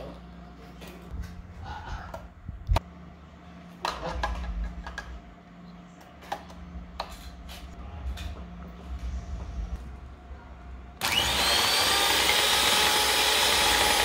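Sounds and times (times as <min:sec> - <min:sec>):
mixer beaters clicking and rattling: 0:11.0 - 0:14.0.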